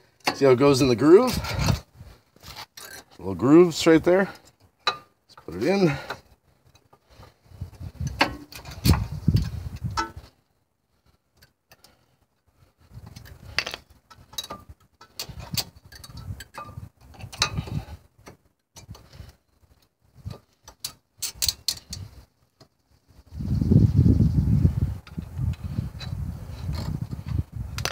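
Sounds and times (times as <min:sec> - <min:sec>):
small metal clicks and clinks: 0:13.1 - 0:17.6, 0:20.5 - 0:22.1.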